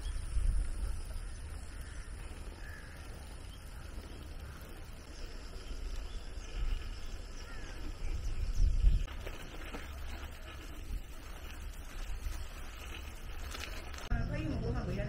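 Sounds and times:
crow cawing: 1.2 - 5.2, 7.4 - 7.9.

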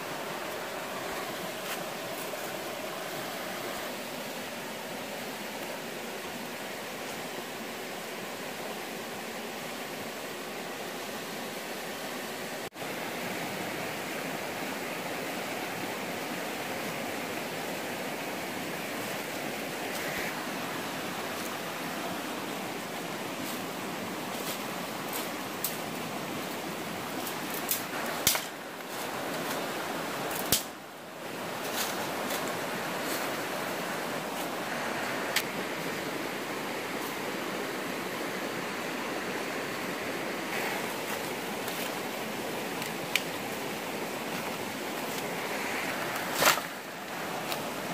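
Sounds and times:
stream rushing: 0.0 - 47.9
dry sticks and leaves crackling: 23.0 - 35.5, 40.5 - 47.9.

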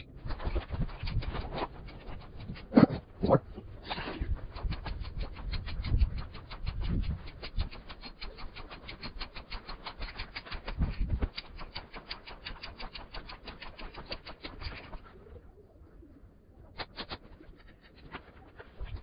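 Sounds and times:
rapid sharp ticking: 0.0 - 2.8, 4.3 - 15.0.

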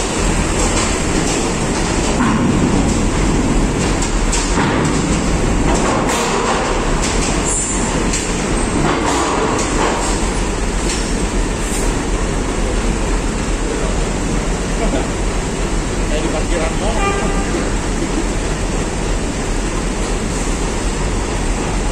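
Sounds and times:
diesel truck rumble: 0.0 - 21.9.

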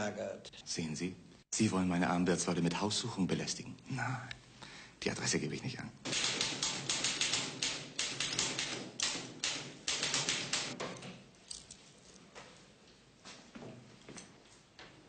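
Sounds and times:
typewriter keys striking: 6.1 - 10.8.

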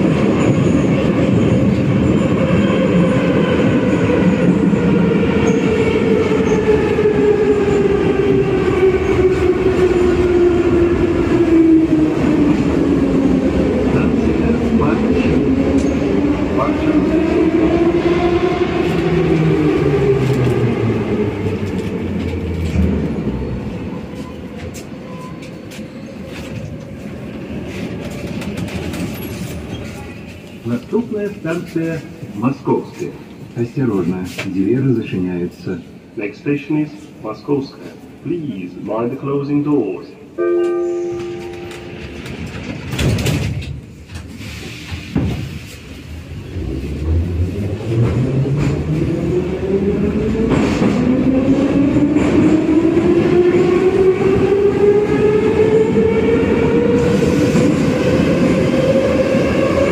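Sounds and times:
train rumble: 39.8 - 59.9
sliding doors closing: 41.7 - 49.2.

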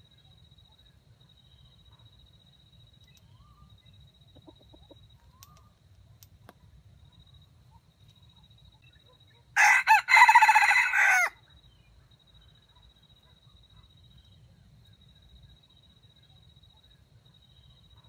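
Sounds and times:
rooster crowing: 9.6 - 11.4.

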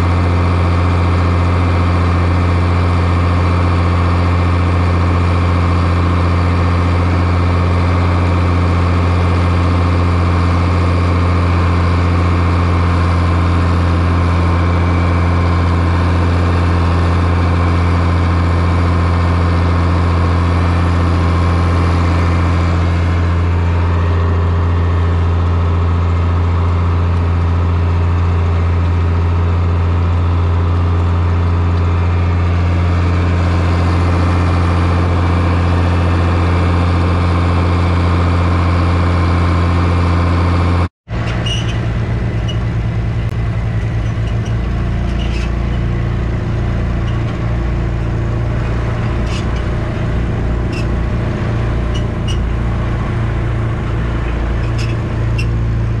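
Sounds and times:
tractor engine running under load: 0.0 - 56.0.

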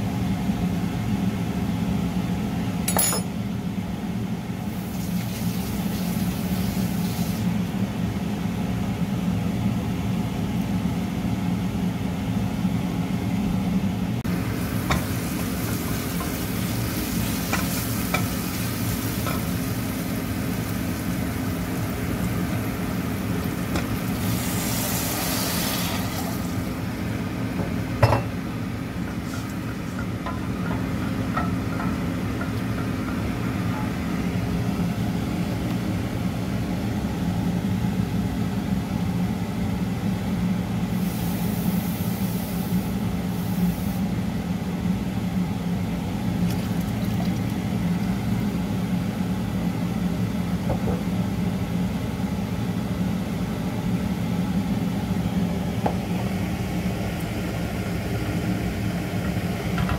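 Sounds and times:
onions sizzling in oil: 4.7 - 7.6, 14.3 - 27.0
water hissing in hot pot: 4.7 - 7.6, 14.4 - 22.7, 23.4 - 26.7, 41.0 - 44.0.

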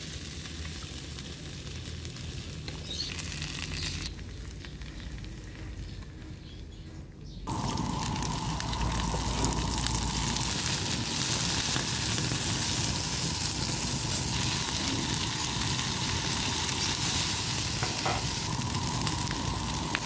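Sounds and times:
beans sizzling in oil: 0.0 - 5.4, 7.5 - 20.0
faint kitchen noise: 0.0 - 20.0
faint whine: 7.5 - 20.0.

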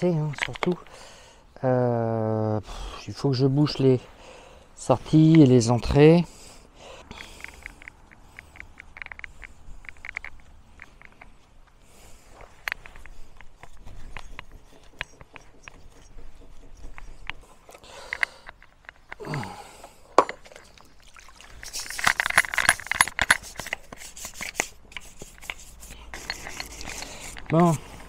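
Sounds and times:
small clicks and knocks of handling: 0.2 - 1.0, 7.1 - 20.8, 21.6 - 28.0
stiff brush scrubbing: 11.4 - 17.8, 21.3 - 28.0.

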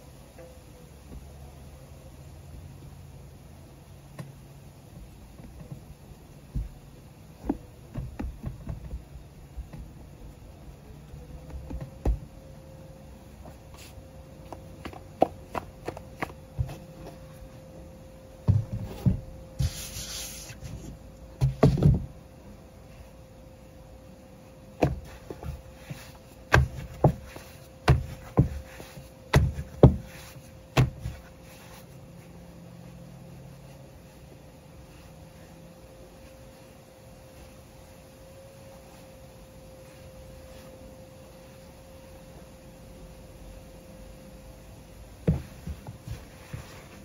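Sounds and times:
hands pressing dough on board: 7.4 - 9.1, 24.8 - 31.3
dough slaps and knocks: 24.8 - 31.2.

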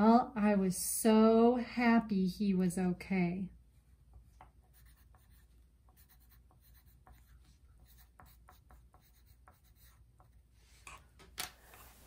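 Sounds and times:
pencil scratching on paper: 4.2 - 11.0.

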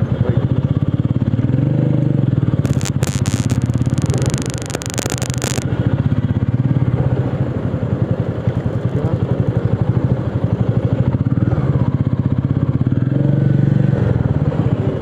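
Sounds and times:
motorcycle engine running: 0.4 - 15.0
hissing noise: 2.6 - 5.6.

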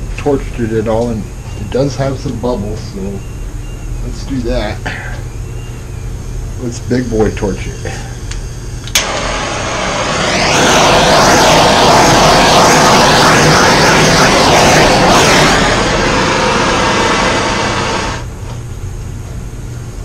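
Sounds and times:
propane torch hissing: 8.9 - 18.3.

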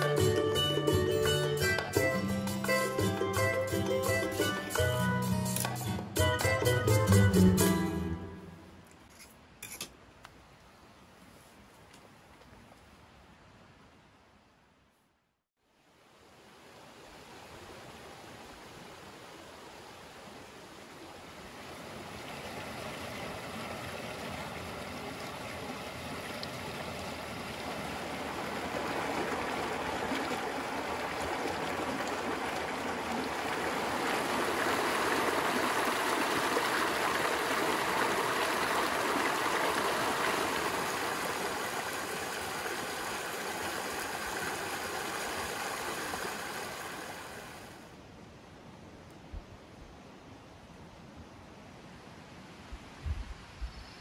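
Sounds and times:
creek water rushing over rocks: 16.2 - 47.9.

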